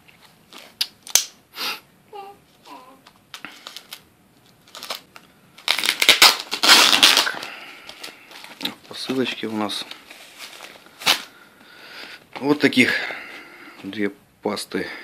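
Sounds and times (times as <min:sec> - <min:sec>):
foam and plastic film crinkling: 0:03.4 - 0:11.3.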